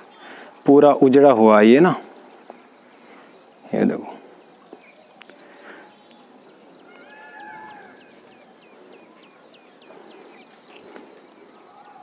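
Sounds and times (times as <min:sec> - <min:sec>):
distant animal call: 0:06.8 - 0:08.4.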